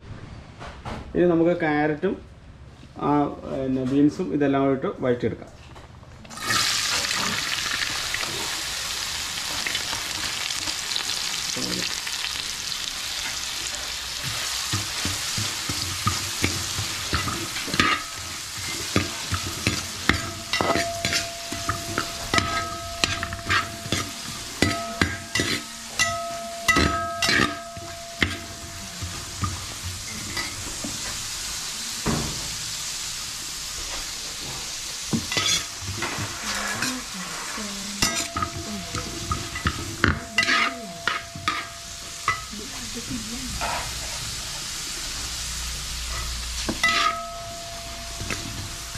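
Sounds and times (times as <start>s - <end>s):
carrots sizzling in pan: 6.3s - 48.9s
metal spatula scraping pan: 13.1s - 31.2s, 35.1s - 44.6s, 46.0s - 48.9s.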